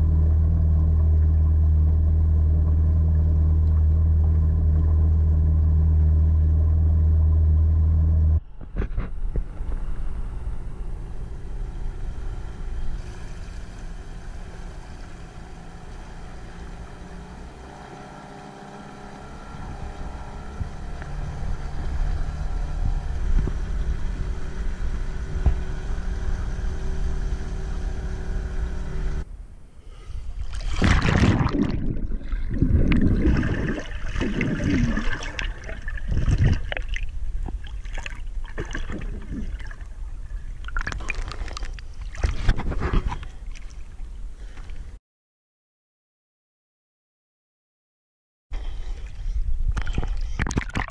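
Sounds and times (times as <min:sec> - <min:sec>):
outboard motor humming: 0:00.0 - 0:45.0
underwater splashing and bubbling: 0:30.4 - 0:42.5, 0:49.8 - 0:50.9
steady water rush: 0:30.4 - 0:44.0.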